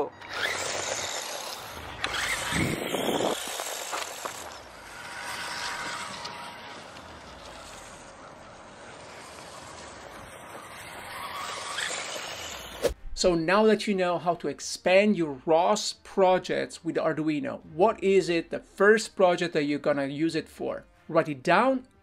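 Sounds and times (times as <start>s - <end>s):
rc car motor and tyres on grass: 0.0s - 13.0s.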